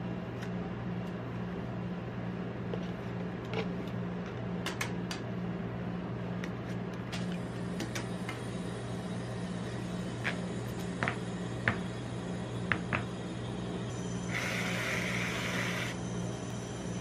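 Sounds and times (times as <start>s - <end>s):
cold plate machine hum: 0.0s - 17.0s
aerosol whipped cream hiss: 14.3s - 16.0s.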